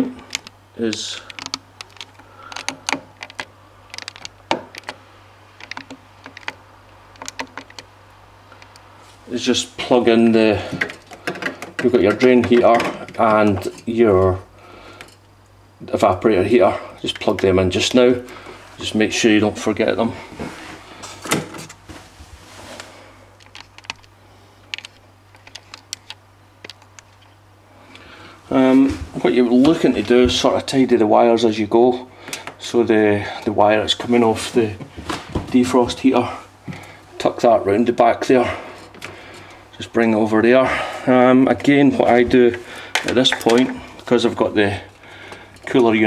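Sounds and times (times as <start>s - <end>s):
low steady hum: 0.0s - 46.0s
clicks and taps of handling wiring: 0.3s - 5.0s, 5.6s - 7.9s, 10.7s - 14.4s, 23.4s - 27.3s, 41.6s - 44.1s.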